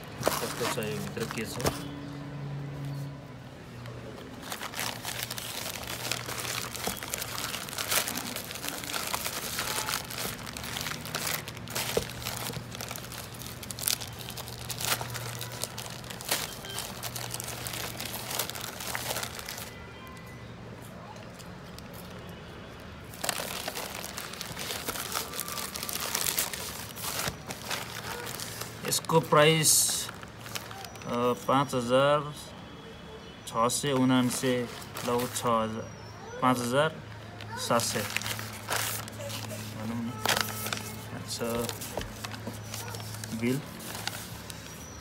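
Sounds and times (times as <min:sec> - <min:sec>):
plastic bag crinkling and tearing: 0:00.0 - 0:01.8, 0:04.4 - 0:19.8, 0:23.0 - 0:31.1, 0:34.2 - 0:35.5, 0:37.5 - 0:45.0.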